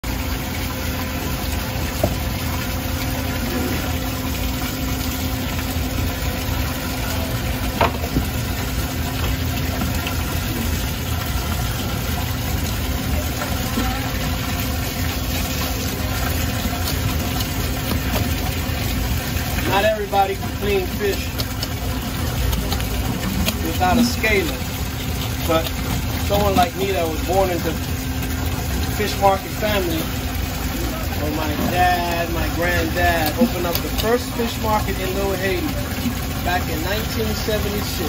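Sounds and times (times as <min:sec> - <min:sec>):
low machine hum: 0:00.0 - 0:38.0
tap running into steel sink: 0:07.8 - 0:08.4.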